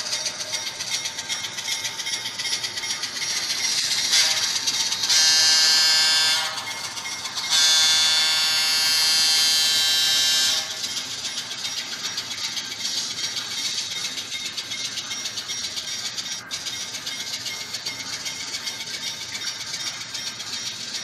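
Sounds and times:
diesel locomotive horn blasts: 0:05.1 - 0:06.7, 0:07.5 - 0:10.8.

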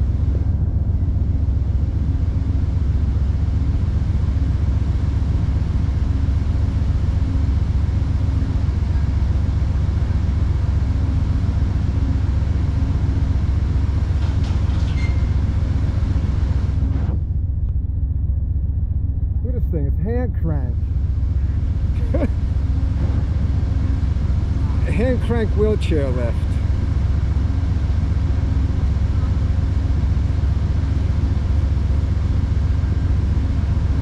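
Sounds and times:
diesel locomotive idling: 0:00.0 - 0:34.0
faint hum: 0:00.0 - 0:34.0.

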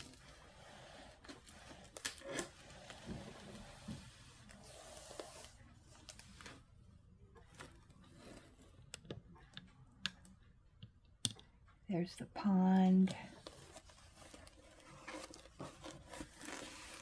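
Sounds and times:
plastic cover rustling: 0:13.4 - 0:17.0.

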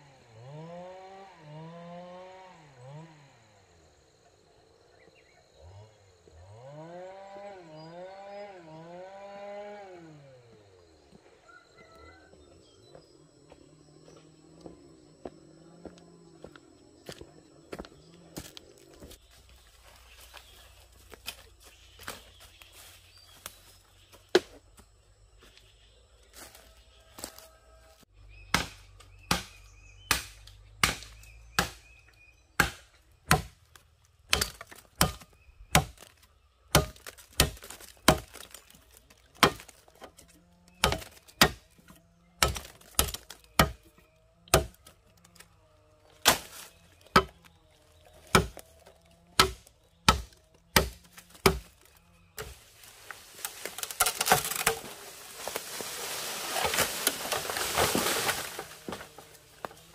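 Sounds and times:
blade chopping wood: 0:28.4 - 0:33.7, 0:34.3 - 0:45.4, 0:46.2 - 0:47.5, 0:48.1 - 0:52.6, 0:53.5 - 0:55.8.

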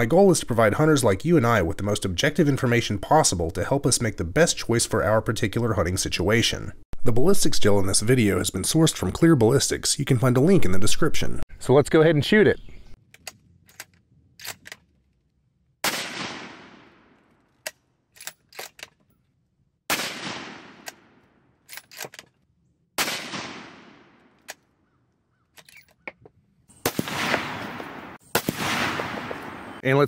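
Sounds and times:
rifle bolt clicking: 0:13.1 - 0:14.9, 0:17.3 - 0:19.0, 0:21.7 - 0:22.4
rifle shots: 0:15.8 - 0:17.2, 0:19.9 - 0:21.3, 0:23.0 - 0:24.4, 0:26.8 - 0:29.8.

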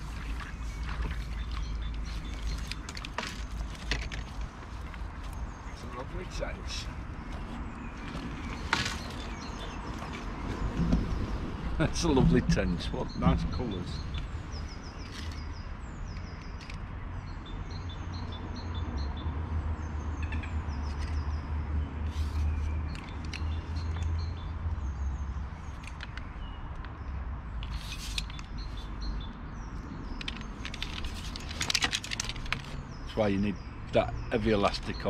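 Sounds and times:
small birds chirping: 0:00.0 - 0:35.0
steady low rumble: 0:09.9 - 0:15.1.

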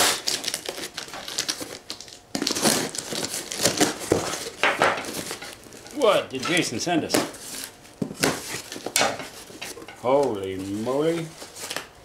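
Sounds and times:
cardboard box tearing open: 0:00.0 - 0:04.5.

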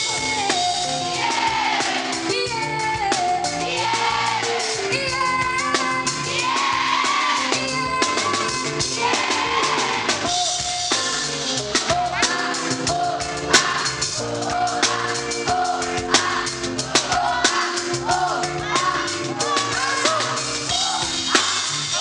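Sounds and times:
drum kit beat: 0:00.0 - 0:22.0
woman singing: 0:02.3 - 0:03.9, 0:04.8 - 0:06.4, 0:07.4 - 0:09.2.

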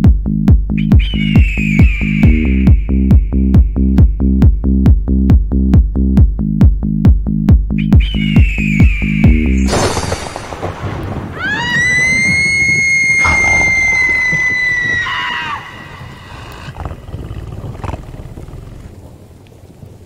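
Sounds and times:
long high-pitched scream: 0:01.0 - 0:03.5, 0:11.4 - 0:16.7
steady hiss: 0:09.6 - 0:11.2.

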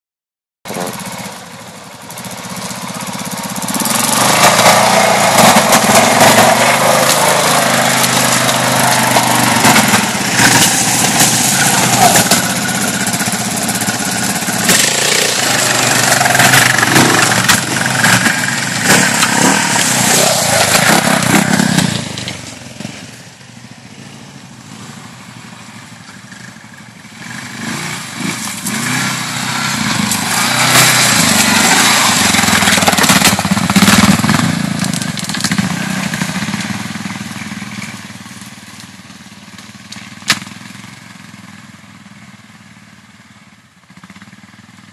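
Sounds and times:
quad bike engines revving: 0:00.7 - 0:44.9.

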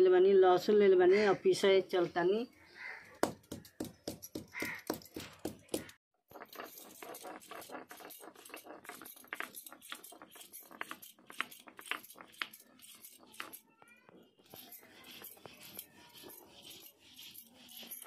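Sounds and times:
stone grinding on stone slab: 0:03.8 - 0:13.8, 0:14.4 - 0:18.0.

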